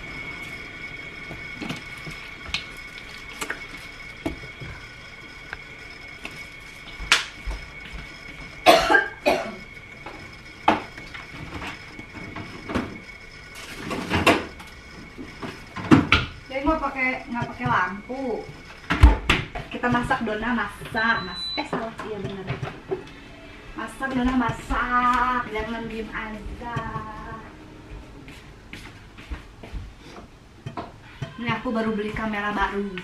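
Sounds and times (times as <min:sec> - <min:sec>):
faint steady high tone: 0:00.0 - 0:28.3
person coughing: 0:08.6 - 0:09.6.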